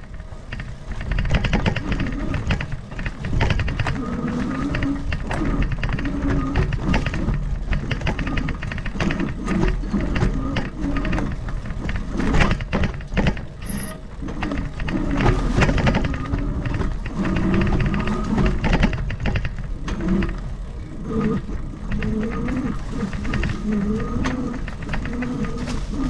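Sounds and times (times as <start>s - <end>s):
bike rattling and knocking: 0.0s - 26.0s
wavering hum: 0.0s - 26.0s.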